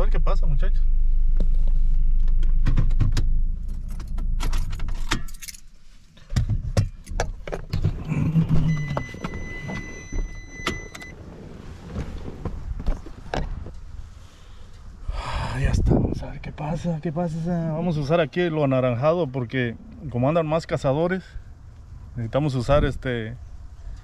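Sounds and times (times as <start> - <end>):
keys jangling: 3.7 - 5.7
car door opening: 6.4 - 13.8
electronic warning chime: 8.6 - 11.1.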